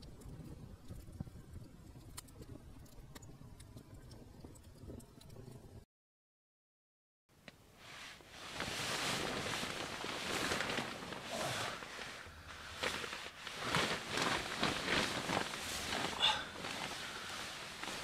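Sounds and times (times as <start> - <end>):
sleeping bag rustling: 7.8 - 18.0.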